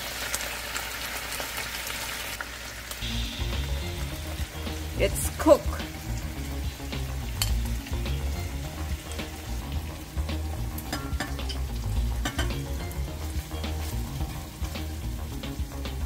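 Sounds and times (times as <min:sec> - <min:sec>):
meat and onions sizzling in a pan: 0:00.0 - 0:16.0
tongs clicking against pan: 0:07.4 - 0:07.8, 0:10.8 - 0:13.0.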